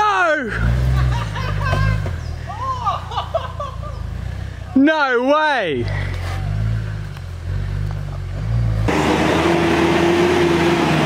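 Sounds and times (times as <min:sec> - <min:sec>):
engine revving: 0:00.4 - 0:02.2, 0:05.8 - 0:11.0.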